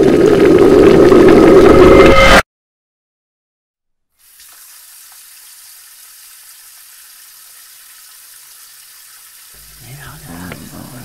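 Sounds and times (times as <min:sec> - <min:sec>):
tap water running into sink: 0:04.2 - 0:11.0.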